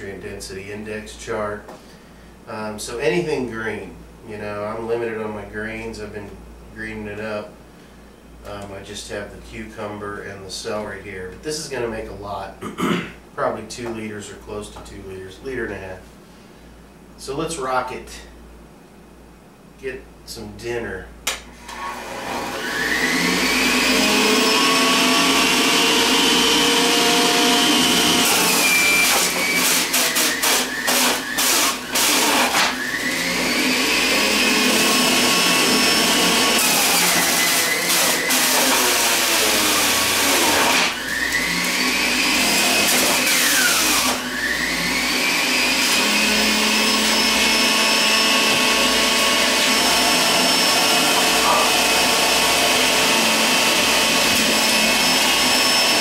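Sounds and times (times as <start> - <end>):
electric juicer motor whining: 21.6 - 56.0
produce crackling in juicer: 22.6 - 56.0.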